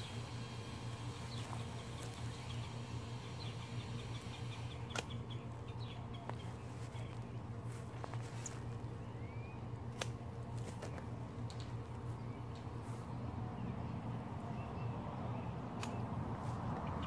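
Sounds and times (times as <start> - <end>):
low hum: 0.0 - 17.0
small birds chirping: 0.0 - 17.0
loppers snapping stems: 3.6 - 5.4, 9.9 - 11.8, 15.7 - 16.1.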